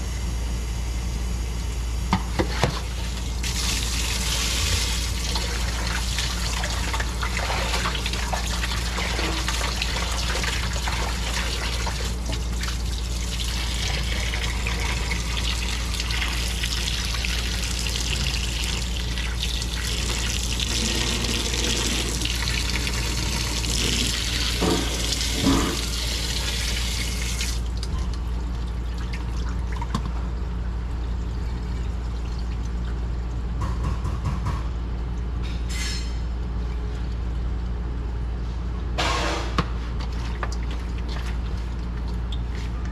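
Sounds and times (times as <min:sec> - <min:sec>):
steady low hum: 0:00.0 - 0:42.9
tap water running into metal bowl: 0:02.3 - 0:30.2.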